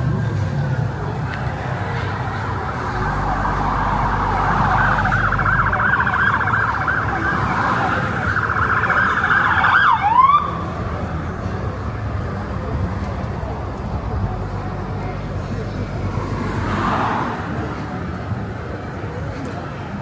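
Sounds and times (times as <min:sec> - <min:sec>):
low rumble of engines: 0:00.0 - 0:20.0
siren wailing and warbling: 0:02.5 - 0:10.6.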